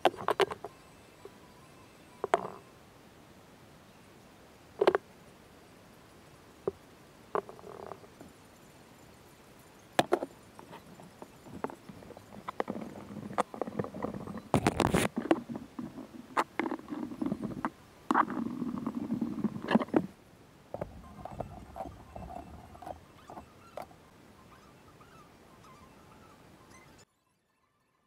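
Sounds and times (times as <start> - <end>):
boards and clamps scraping: 11.6 - 20.1.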